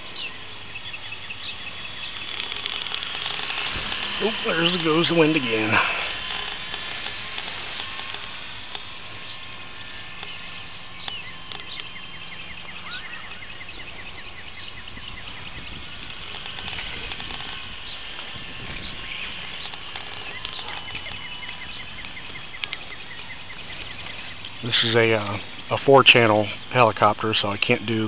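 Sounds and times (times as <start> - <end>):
rapid high chirps: 0.0 - 28.0
wind noise on microphone: 14.7 - 22.2.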